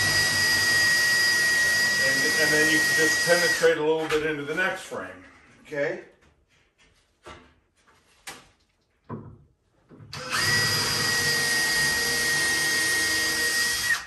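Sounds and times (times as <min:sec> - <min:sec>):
power drill running: 0:00.0 - 0:03.7, 0:10.1 - 0:14.0.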